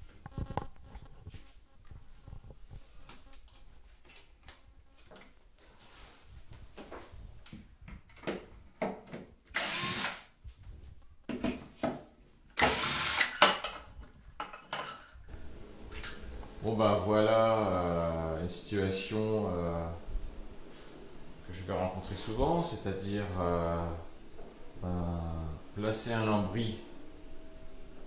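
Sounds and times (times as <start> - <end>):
cordless drill running: 9.5 - 10.3, 12.6 - 13.4.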